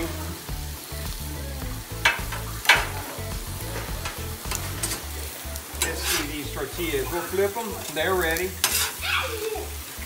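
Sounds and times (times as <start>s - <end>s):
food sizzling on griddle: 0.0s - 10.0s
metal spatulas scraping griddle: 2.1s - 9.0s.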